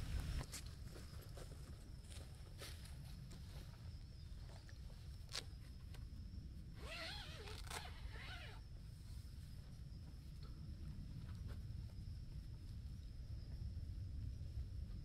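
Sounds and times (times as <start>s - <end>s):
tent zipper pulled open: 6.8s - 8.6s.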